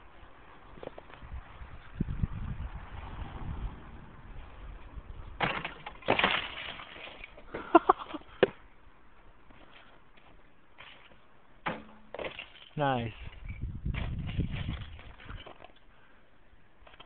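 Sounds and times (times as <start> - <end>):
shovel striking breaking ice: 5.4 - 7.3.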